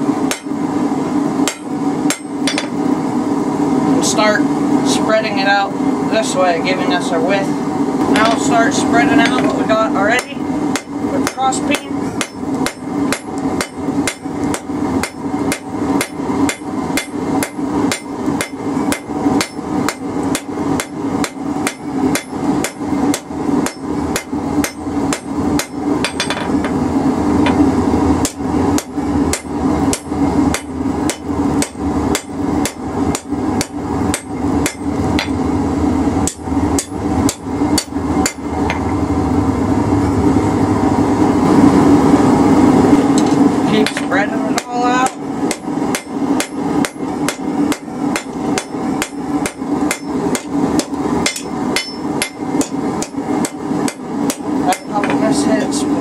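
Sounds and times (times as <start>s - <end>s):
hammer striking steel on anvil: 0.3s - 0.6s, 1.4s - 2.8s, 9.1s - 26.8s, 28.2s - 35.4s, 36.2s - 38.9s, 43.8s - 55.2s.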